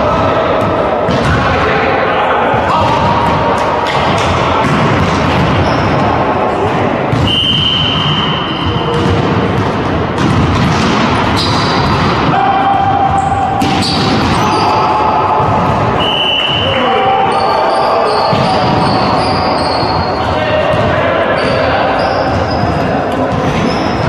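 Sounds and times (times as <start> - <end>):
echoing hall din: 0.0 - 24.0
players' voices: 0.0 - 24.0
sneakers squeaking on wooden floor: 5.4 - 6.2, 10.2 - 12.0, 13.1 - 14.9, 16.0 - 24.0
volleyball being struck: 7.1 - 16.1.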